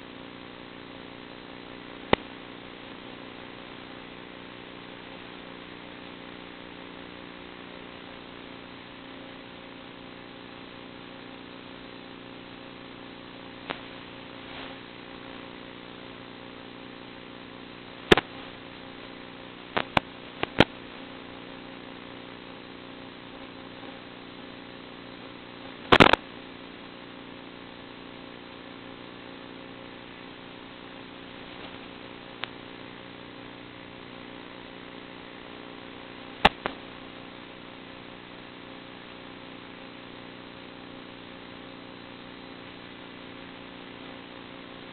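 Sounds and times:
buzzing hum and hiss: 0:00.0 - 0:44.9
sharp clicks: 0:18.1 - 0:18.3, 0:19.8 - 0:20.7, 0:25.9 - 0:26.2, 0:36.4 - 0:36.8.

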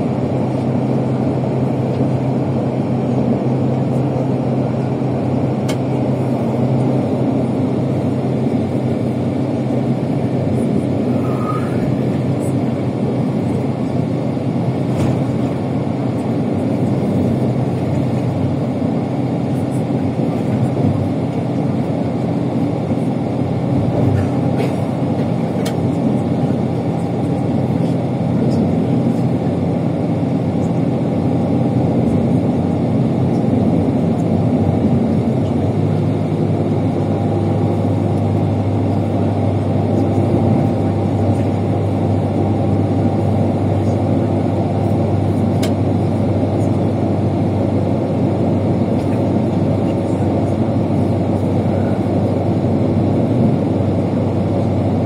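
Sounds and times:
bus engine running: 0:00.0 - 0:55.0.

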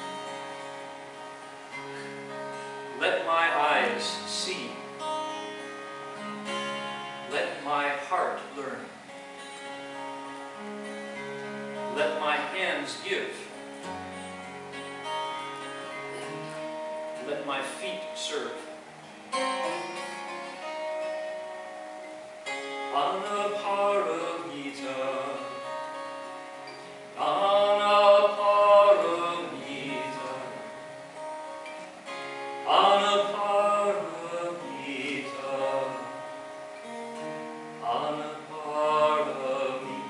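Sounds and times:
acoustic guitar strumming: 0:00.0 - 0:40.0
man singing: 0:02.9 - 0:04.8, 0:07.3 - 0:08.9, 0:11.9 - 0:13.5, 0:22.9 - 0:25.7, 0:27.2 - 0:30.8, 0:32.6 - 0:36.3, 0:37.8 - 0:40.0.

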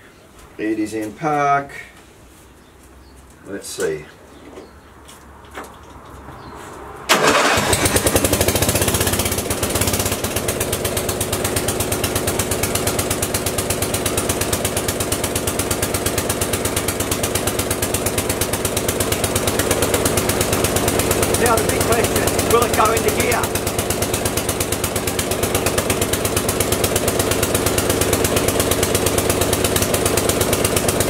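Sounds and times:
mower engine starting and running: 0:07.1 - 0:31.0.

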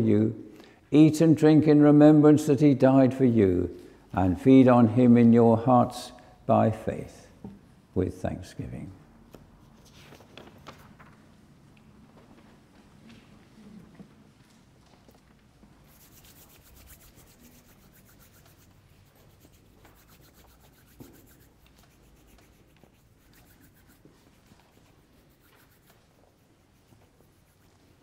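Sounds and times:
rapid scratchy rubbing: 0:15.9 - 0:28.0.

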